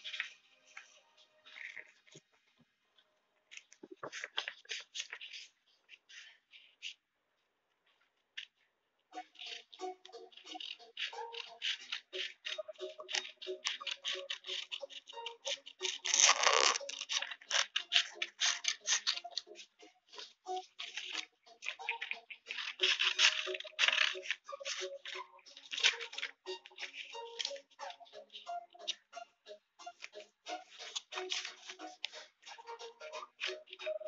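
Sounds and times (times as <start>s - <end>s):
paper handling: 3.5s - 7.1s, 9.4s - 29.0s, 30.0s - 32.7s
scissors cutting paper: 3.6s - 7.0s, 9.2s - 29.0s, 29.9s - 34.0s
pencil scratching on paper: 9.2s - 28.9s.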